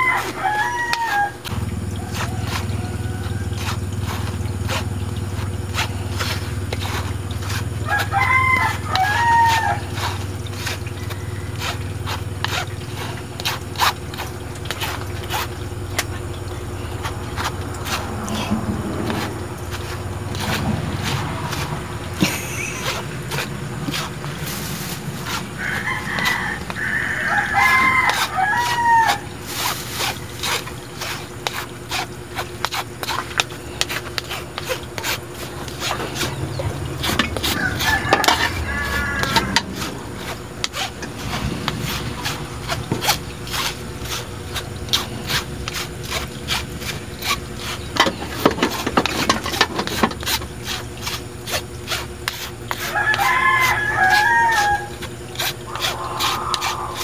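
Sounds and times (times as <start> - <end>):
spoon scraping flour through strainer: 0.0 - 57.0
bird calling: 15.4 - 31.4, 33.1 - 45.7, 52.7 - 57.0.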